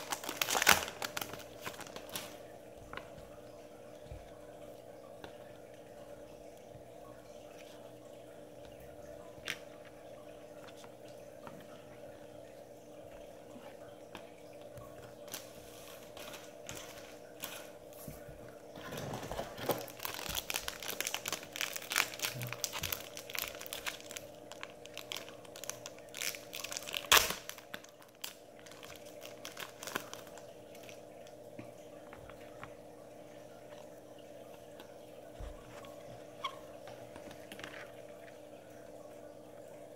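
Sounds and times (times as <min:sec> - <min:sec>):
wrapper snapping: 0:00.0 - 0:02.4, 0:18.9 - 0:30.9
card pack wrapper crinkling: 0:00.0 - 0:02.5, 0:18.8 - 0:31.0.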